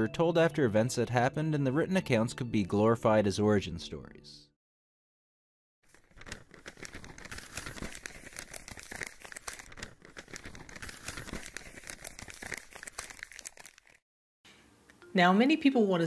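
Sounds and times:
parchment rustling and crinkling: 0:05.8 - 0:14.0.

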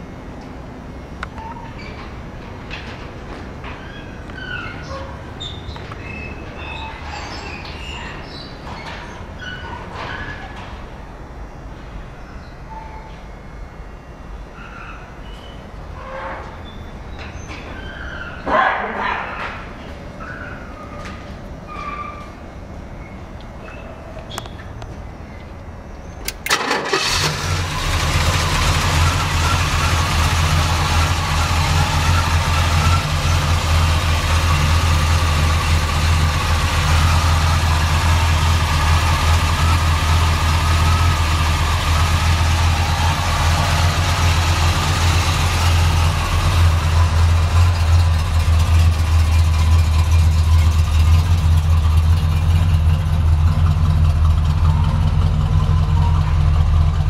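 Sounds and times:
car engine starting and idling: 0:26.2 - 0:57.0.

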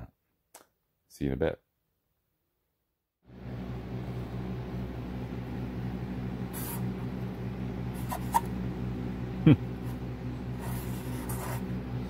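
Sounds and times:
electric fan humming: 0:03.3 - 0:12.0
marker squeaking on board: 0:08.0 - 0:08.5, 0:10.6 - 0:11.7.

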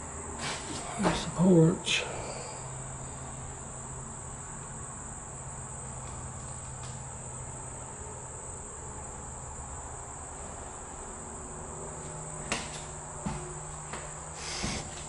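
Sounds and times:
insect chorus: 0:00.0 - 0:15.0
footsteps on floorboards: 0:12.5 - 0:15.0.

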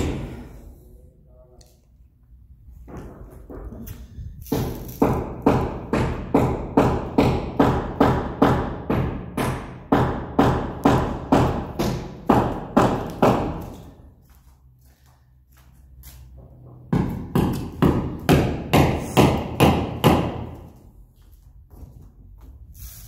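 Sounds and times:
echoing footsteps on tile floor: 0:12.9 - 0:18.3, 0:20.4 - 0:22.8.

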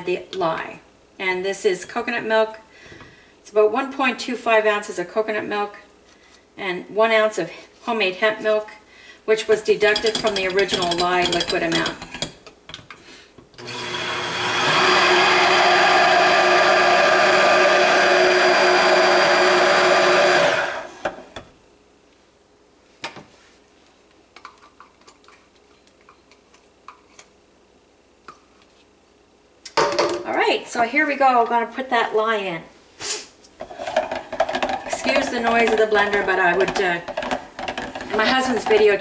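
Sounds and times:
stick blender running: 0:13.6 - 0:21.4, 0:33.6 - 0:39.0.

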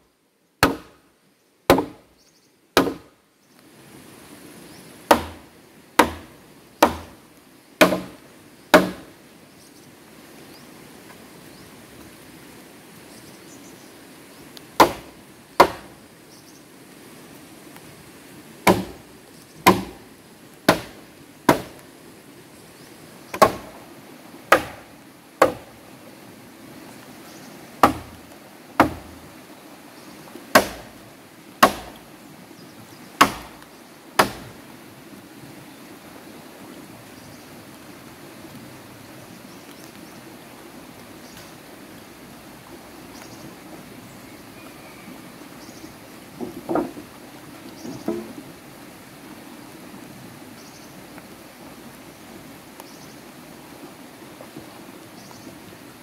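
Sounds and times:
axe chopping wood: 0:00.6 - 0:01.0, 0:01.7 - 0:02.0, 0:02.8 - 0:03.1, 0:05.1 - 0:07.2, 0:07.8 - 0:09.1, 0:14.8 - 0:15.9, 0:18.6 - 0:19.0, 0:19.6 - 0:20.0, 0:20.7 - 0:21.8, 0:23.3 - 0:23.8, 0:24.5 - 0:25.7, 0:27.8 - 0:28.2, 0:28.8 - 0:29.2, 0:30.5 - 0:31.0, 0:31.6 - 0:32.0, 0:33.2 - 0:33.6, 0:34.2 - 0:34.5.

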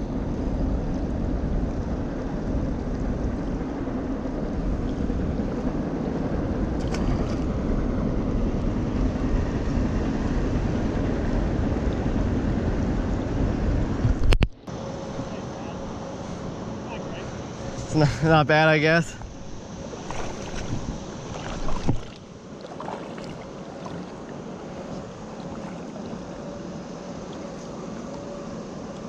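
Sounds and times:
wind buffeting microphone: 0:19.2 - 0:26.6.

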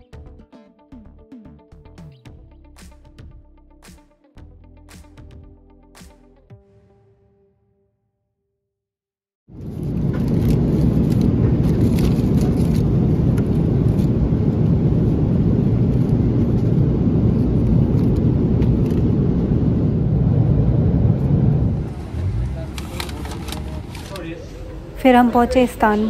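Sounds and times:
airliner cabin rumble: 0:09.5 - 0:25.5.

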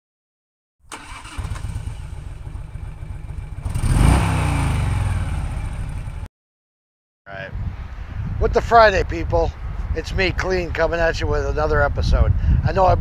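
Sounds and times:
motorcycle engine running: 0:01.1 - 0:06.3.

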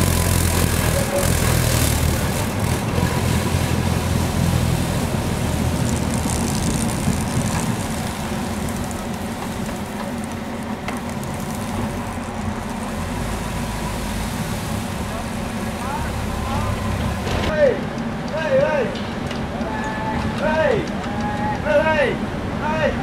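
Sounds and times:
tram low rumble: 0:00.0 - 0:23.0.

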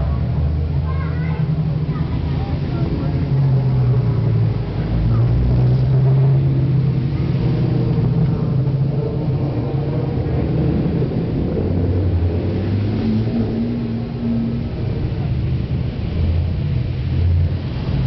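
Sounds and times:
race car engines passing: 0:00.0 - 0:18.0.

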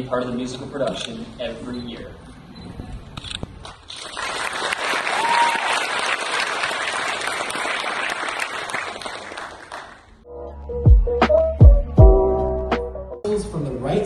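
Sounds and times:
crowd applauding: 0:03.9 - 0:10.2.

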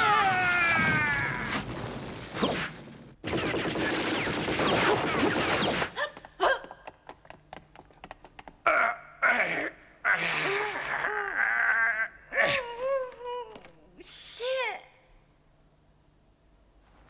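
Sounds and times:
rapid cartoon gunfire: 0:02.4 - 0:06.0.

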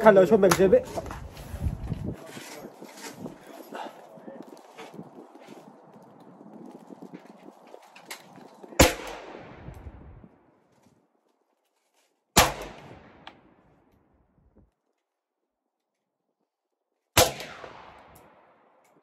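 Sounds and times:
gunshots with echo: 0:08.8 - 0:09.9, 0:12.4 - 0:13.2, 0:17.2 - 0:18.5.

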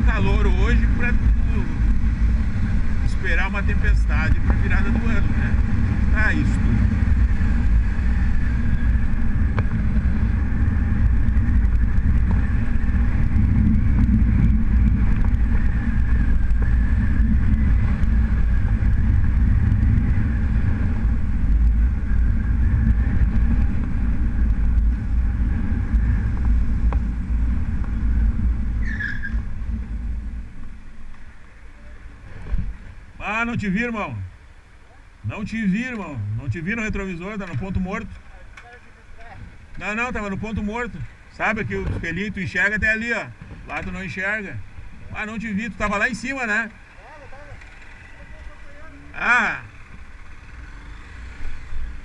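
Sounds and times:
motorcycle engine rumble: 0:00.0 - 0:52.0
short high-pitched squeal: 0:28.8 - 0:29.4.

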